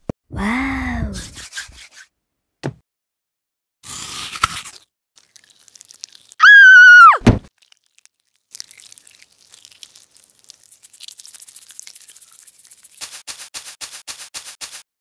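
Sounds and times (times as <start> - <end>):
crackly hissing rustle: 7.6 - 14.8
quick rattling strokes: 11.3 - 14.8.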